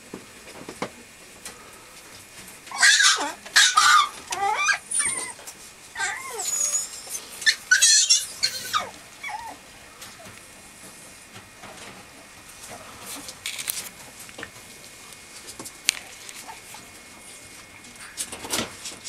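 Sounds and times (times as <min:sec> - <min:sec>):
puppy whining and yelping: 0:02.7 - 0:09.6.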